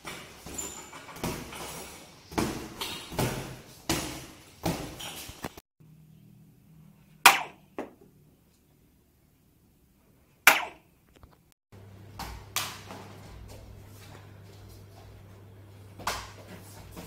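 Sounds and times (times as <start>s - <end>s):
sharp cracks: 10.5s - 10.8s.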